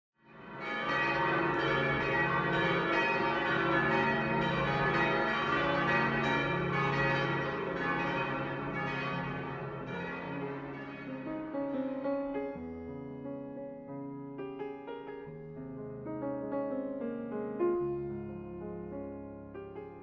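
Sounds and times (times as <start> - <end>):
church bells pealing: 0.3 - 12.0.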